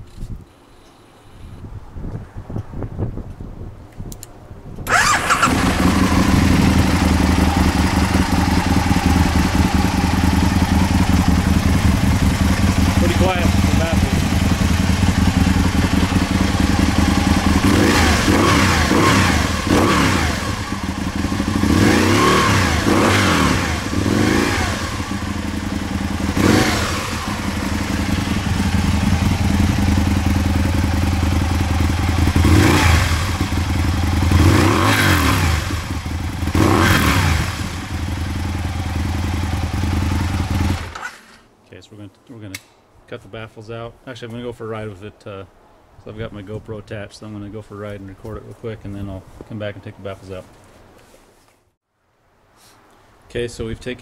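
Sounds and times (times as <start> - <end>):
engine revving in throttle blips: 4.8 - 30.4, 31.0 - 41.0
motorcycle engine idling: 4.9 - 40.9.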